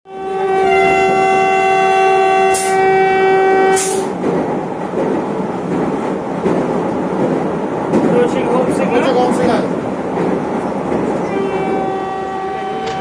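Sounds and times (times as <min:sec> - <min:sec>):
train horn blast: 0:00.1 - 0:04.1, 0:11.2 - 0:13.0
train rumbling: 0:00.1 - 0:13.0.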